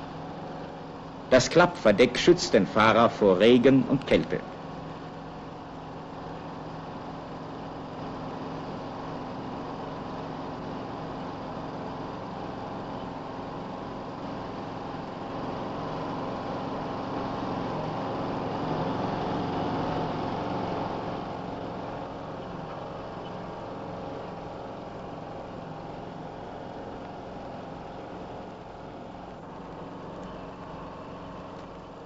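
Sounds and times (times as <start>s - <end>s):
truck engine running: 0.0s - 7.5s.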